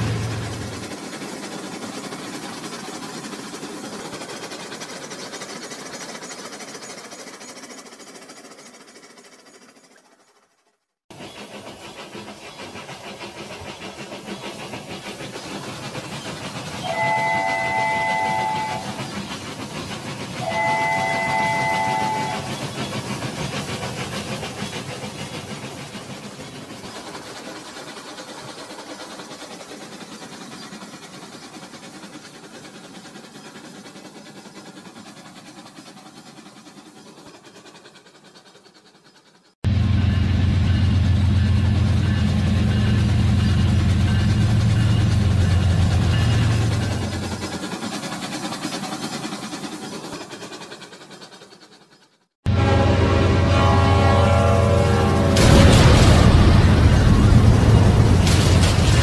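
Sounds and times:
toy trains whirring and rattling: 0.0 - 39.6, 41.4 - 52.4, 54.6 - 59.0
toy train electronic horn: 16.8 - 18.9, 20.4 - 22.5, 52.5 - 55.6.

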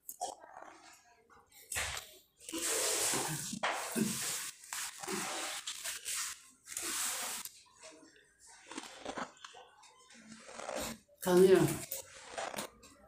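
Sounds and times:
faint chewing: 7.4 - 13.0.

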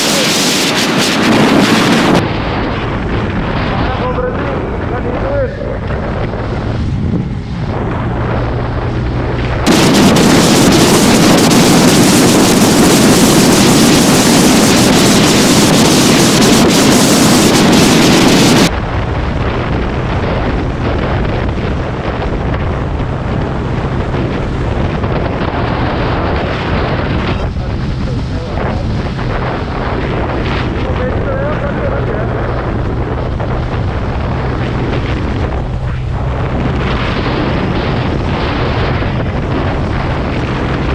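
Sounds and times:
wind rushing over microphone: 0.0 - 40.9
scooter engine humming: 2.2 - 16.4, 18.6 - 30.8, 31.4 - 39.9.

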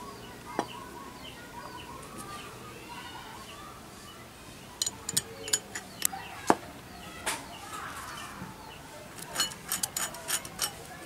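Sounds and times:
metal bolts and nuts clinking: 4.8 - 6.1, 9.2 - 11.0.

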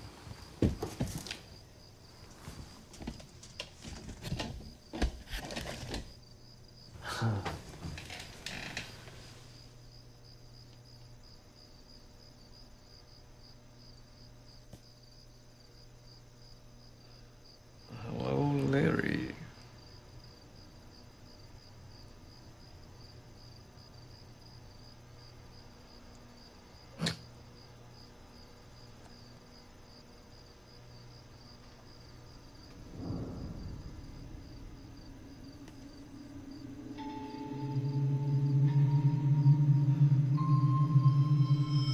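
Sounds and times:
faint electrical hum: 0.0 - 41.9
cricket chirping: 4.5 - 41.9
low sustained music tones: 32.7 - 41.9
low whoosh: 32.7 - 41.9.

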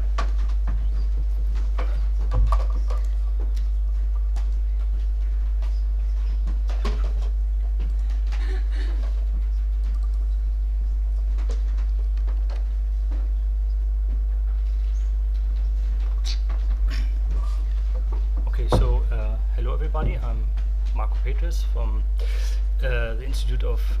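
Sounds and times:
faint clicks and knocks: 0.0 - 21.5
steady low hum: 0.0 - 24.0.

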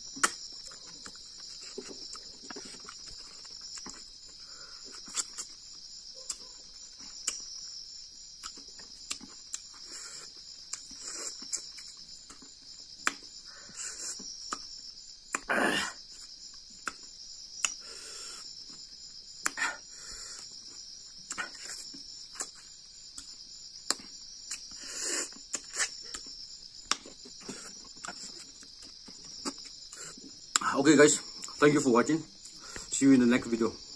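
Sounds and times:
crickets trilling: 0.0 - 33.9
lip smacks: 0.1 - 4.0, 6.2 - 7.6, 16.8 - 17.8, 19.4 - 19.6, 21.3 - 30.7
person chewing: 0.1 - 15.5, 20.4 - 30.6
sharp mouth clicks: 0.2 - 0.5, 7.2 - 7.5, 17.6 - 17.8.

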